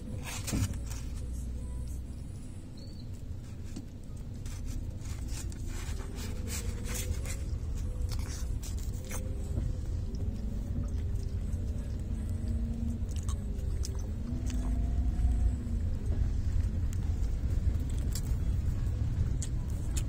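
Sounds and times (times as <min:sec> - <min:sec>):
car cabin rumble: 0:00.0 - 0:20.0
person chewing: 0:04.1 - 0:15.4, 0:17.7 - 0:20.0.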